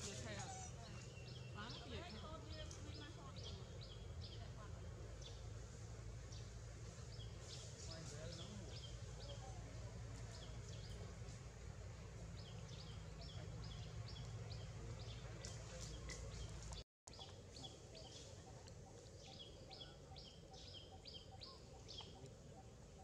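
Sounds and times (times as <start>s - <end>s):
bird calling: 12.4s - 23.0s.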